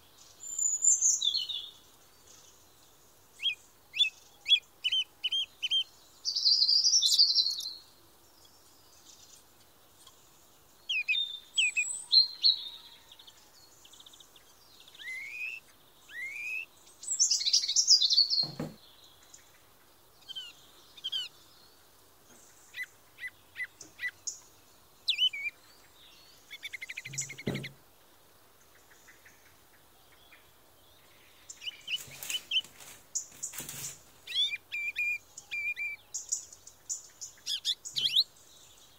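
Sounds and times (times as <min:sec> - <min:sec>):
birds chirping and singing: 0:00.0 - 0:27.8, 0:28.6 - 0:38.9
dull knocks: 0:18.4 - 0:18.8, 0:27.1 - 0:27.8.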